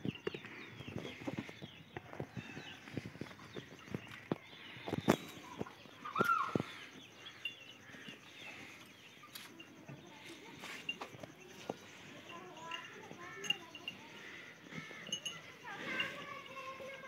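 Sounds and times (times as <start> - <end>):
small birds chirping: 0.0 - 17.0
water buffalo feeding: 0.0 - 17.0
rising-and-falling bird call: 6.0 - 6.7.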